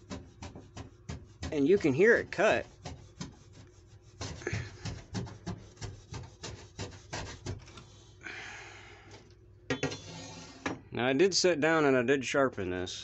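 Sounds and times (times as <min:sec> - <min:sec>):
machete rasping through insulation: 0:00.0 - 0:07.8.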